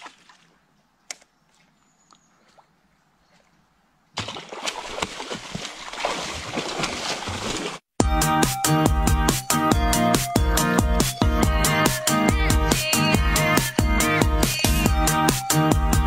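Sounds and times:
fish splashing in water: 4.2s - 7.8s.

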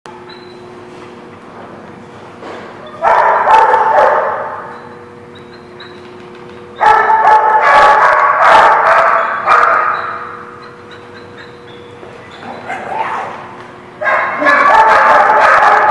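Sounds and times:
room hum: 0.1s - 15.9s
dogs barking: 2.8s - 15.9s.

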